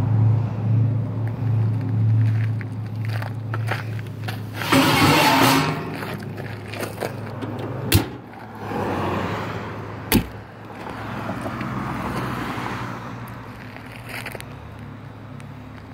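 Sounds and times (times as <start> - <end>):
road traffic passing: 0.0 - 15.9
metal door latch clicks: 7.4 - 8.2.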